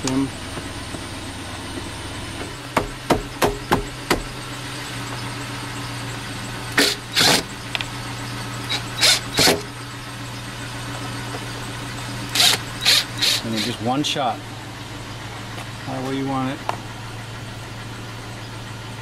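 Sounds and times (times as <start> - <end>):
steady low hum: 0.0 - 19.0
cordless driver driving screws: 6.8 - 7.5, 8.7 - 9.6, 12.3 - 13.8.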